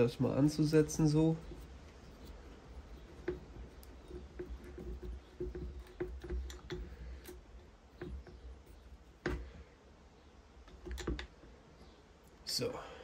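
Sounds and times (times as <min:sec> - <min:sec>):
screwdriver metallic ticking: 0:01.4 - 0:09.4.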